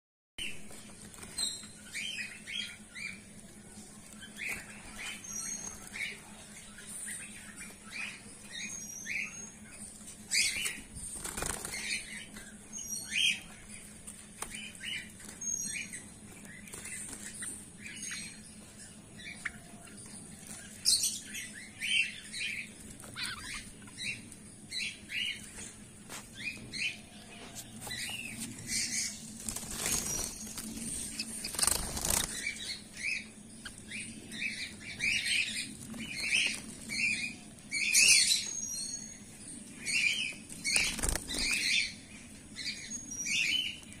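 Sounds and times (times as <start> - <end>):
wings flapping: 10.4 - 12.4, 28.6 - 32.8, 40.5 - 41.8.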